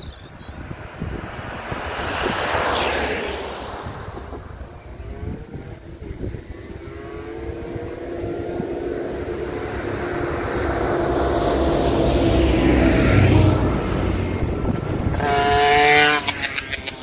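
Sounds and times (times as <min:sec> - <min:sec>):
two-stroke motorcycle engine approaching: 0:00.0 - 0:17.0
van driving past: 0:00.0 - 0:17.0.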